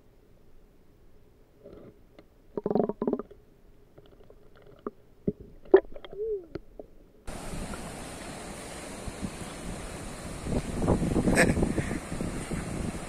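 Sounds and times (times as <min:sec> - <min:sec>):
wind: 0:00.0 - 0:13.0
underwater clicks and knocks: 0:02.5 - 0:03.4, 0:04.0 - 0:06.9
short pitched underwater sounds: 0:02.6 - 0:03.3
river water flowing: 0:07.3 - 0:13.0.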